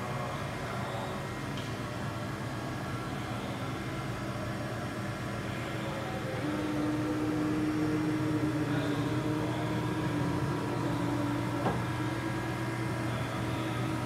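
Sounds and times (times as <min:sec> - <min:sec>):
machinery humming: 0:00.0 - 0:14.0.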